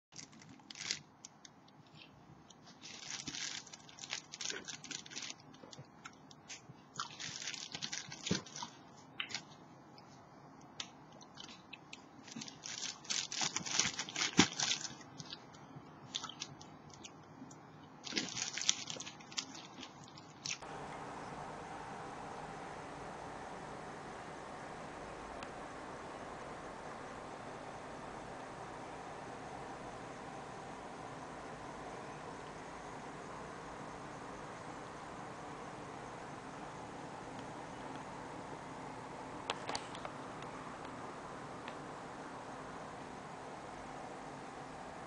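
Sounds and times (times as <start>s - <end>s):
plastic bag crinkling: 0.1s - 1.5s, 2.6s - 9.6s, 11.2s - 17.1s, 18.0s - 20.6s
biting and chewing grapes: 2.7s - 9.5s, 11.2s - 17.1s, 18.0s - 20.6s.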